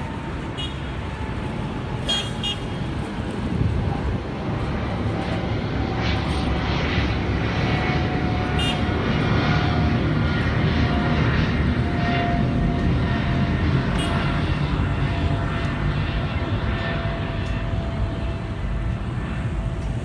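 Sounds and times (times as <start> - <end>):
jet engines rumbling: 0.0 - 20.0.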